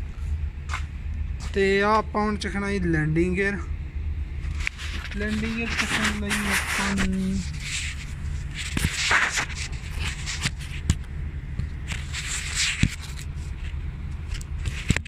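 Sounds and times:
footsteps and scuffs: 0.0s - 1.7s, 4.4s - 15.0s
steady low rumble: 0.0s - 15.0s.

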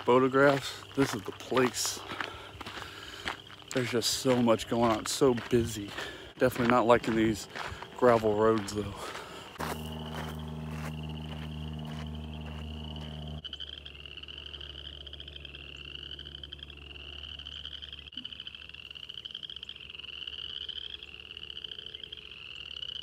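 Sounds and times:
frogs trilling: 0.0s - 23.0s
low hum: 9.4s - 18.1s.

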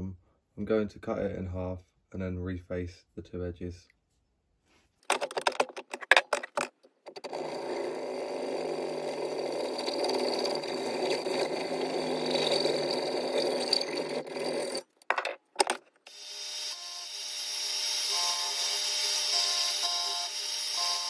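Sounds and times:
saw cutting through brass: 16.1s - 21.0s.

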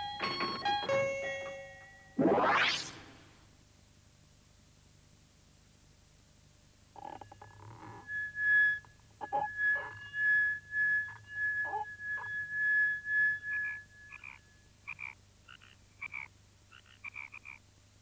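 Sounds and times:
squeaky finger rubbing: 7.0s - 14.4s
singing glass rim tone: 7.0s - 14.8s
tree frog calling: 7.0s - 17.6s.

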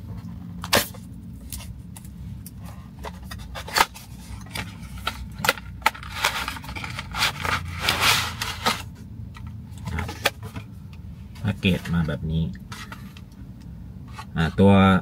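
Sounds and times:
packaging rustling and scraping: 0.2s - 9.0s, 9.8s - 10.7s, 12.6s - 13.2s.

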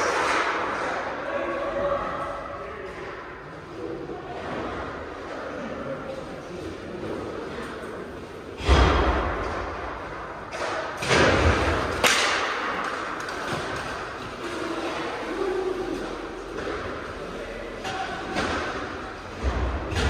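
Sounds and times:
puck and sticks thudding on boards: 0.0s - 1.1s, 8.6s - 15.1s, 16.0s - 20.0s.

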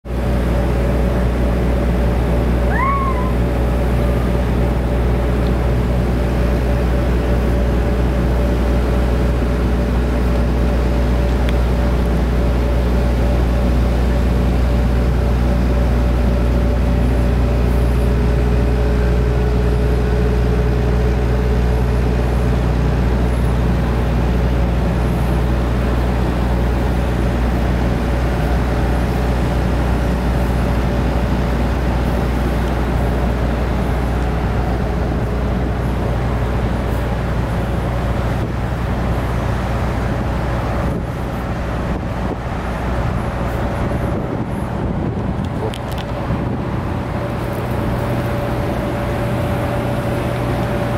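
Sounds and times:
low mechanical drone: 0.1s - 50.9s
short call rising and falling: 2.6s - 3.6s.

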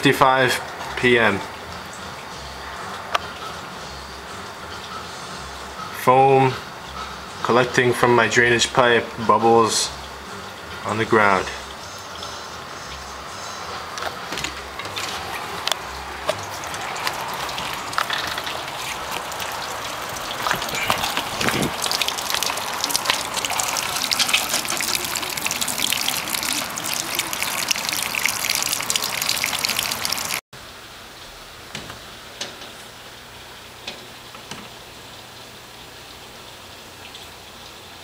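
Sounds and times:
rain hiss: 14.6s - 38.0s
water gushing from pipe: 14.7s - 30.4s
drops ticking: 14.8s - 30.4s.

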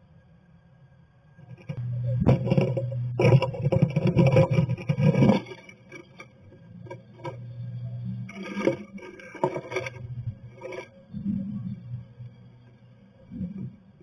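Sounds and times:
low steady hum: 0.0s - 14.0s
bird claws scratching on wood: 2.3s - 6.2s, 8.3s - 10.0s.

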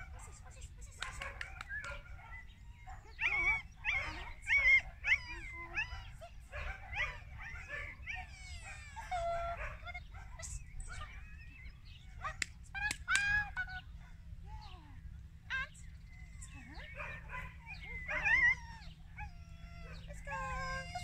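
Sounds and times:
dog whining and yelping: 1.8s - 12.3s, 16.9s - 21.0s.

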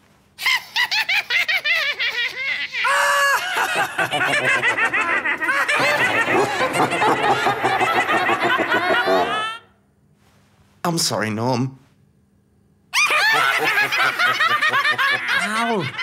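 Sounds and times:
cartoonish laughter: 0.4s - 9.7s, 13.0s - 16.0s.

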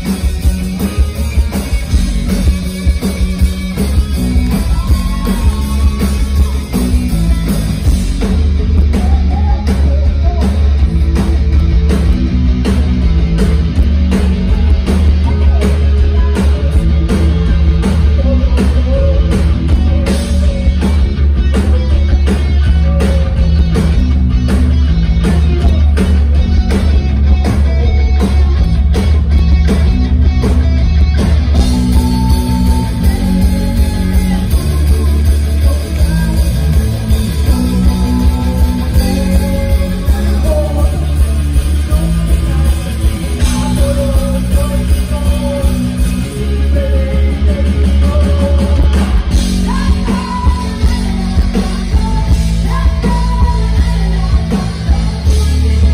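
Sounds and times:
bass guitar: 0.0s - 55.9s
drums: 0.0s - 55.9s
electric guitar: 0.0s - 55.9s
woman singing lead vocal: 4.4s - 7.3s, 8.8s - 10.7s, 31.6s - 55.9s.

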